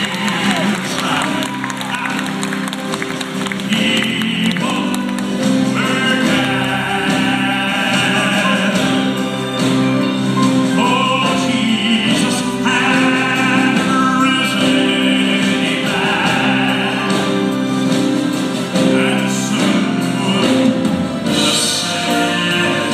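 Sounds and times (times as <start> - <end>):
male quartet singing in harmony: 0.0 - 22.9.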